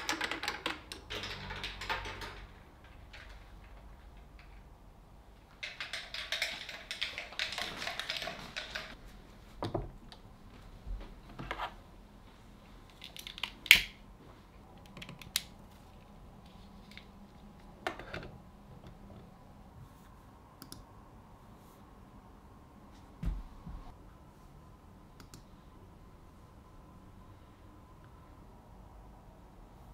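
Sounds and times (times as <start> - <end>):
small objects clicking and tapping: 5.6 - 9.0.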